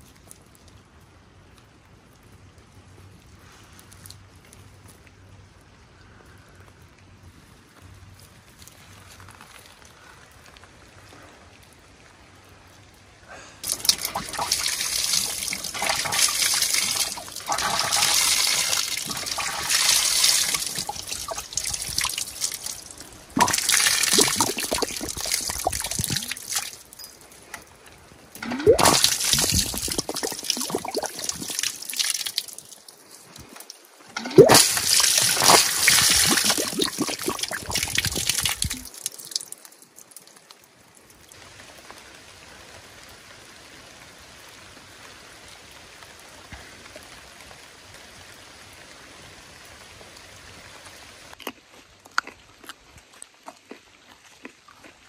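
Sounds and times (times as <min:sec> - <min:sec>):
water splashing over carrots: 0:13.6 - 0:27.0, 0:28.4 - 0:41.3.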